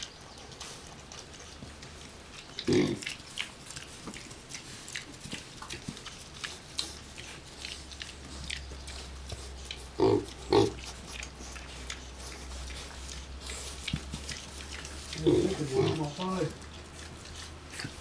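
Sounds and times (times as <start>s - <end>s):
rustling in wood shavings: 0.0s - 18.0s
piglets grunting: 2.3s - 3.8s, 6.4s - 18.0s.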